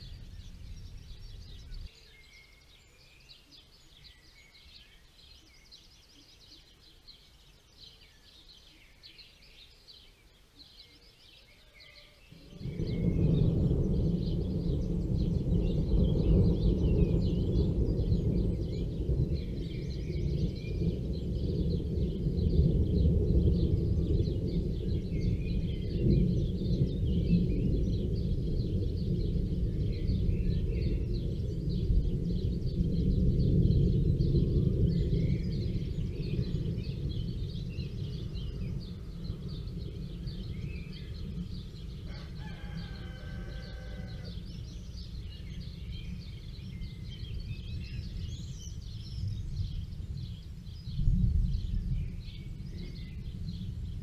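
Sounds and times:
small birds chirping: 0.0 - 54.0
deep low rumble: 12.4 - 54.0
rooster crowing: 42.0 - 44.5.

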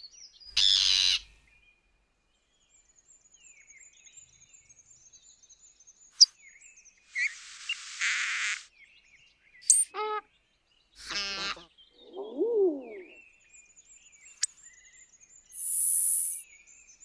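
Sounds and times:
faint high bird chirping: 3.5 - 17.0
animal calls: 11.0 - 13.2.

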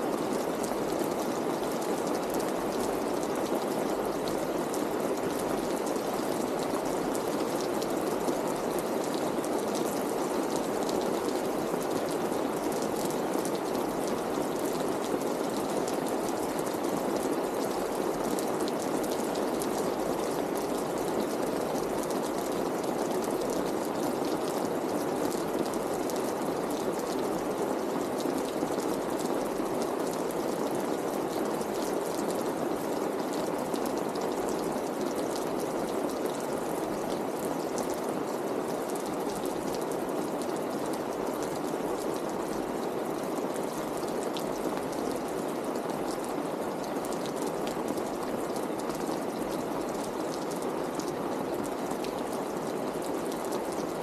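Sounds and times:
rain on a wet street: 0.0 - 54.0.

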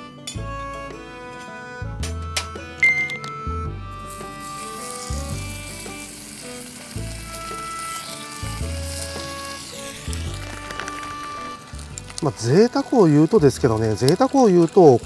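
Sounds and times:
bacon sizzling in a frying pan: 4.0 - 15.0.

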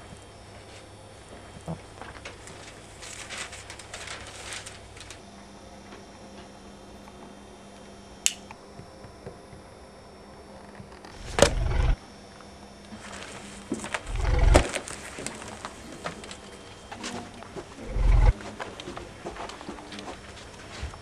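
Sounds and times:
sharp click: 8.2 - 8.6
comic stomach growls: 10.6 - 12.0, 14.0 - 14.9, 17.6 - 18.4.

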